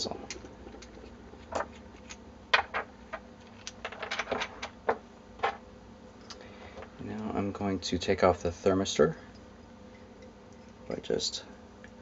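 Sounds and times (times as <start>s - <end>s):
small parts clicking and tapping: 0.3s - 5.6s.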